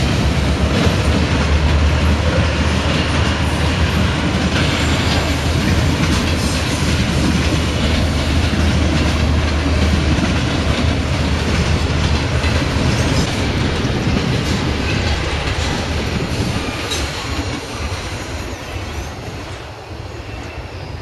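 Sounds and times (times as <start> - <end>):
freight train wheels rumbling on rails: 0.0 - 21.0.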